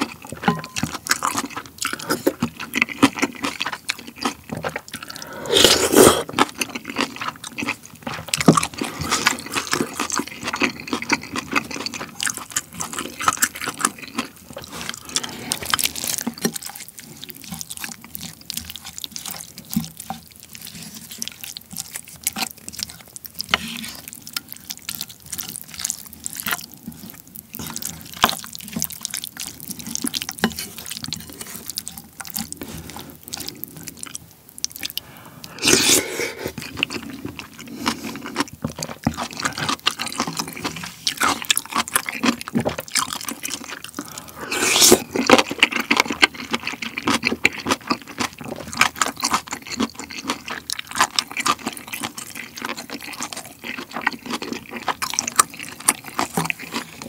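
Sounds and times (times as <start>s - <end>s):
wet chewing and slurping: 0.0s - 57.0s
wet stirring and scraping: 0.0s - 57.0s
spoon clinking on bowl: 0.4s - 0.9s.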